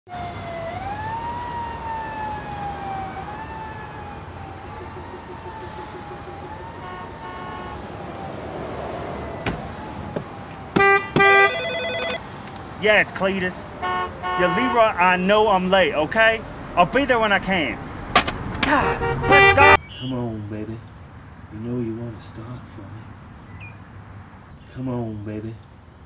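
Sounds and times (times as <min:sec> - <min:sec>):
car phone ringing: 0:10.2 - 0:12.2, 0:18.6 - 0:19.8.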